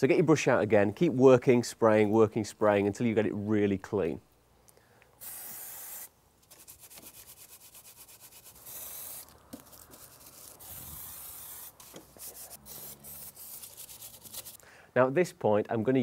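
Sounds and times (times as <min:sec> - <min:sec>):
spray bottle hiss: 0:05.2 - 0:14.5
brush scrubbing: 0:06.5 - 0:14.6.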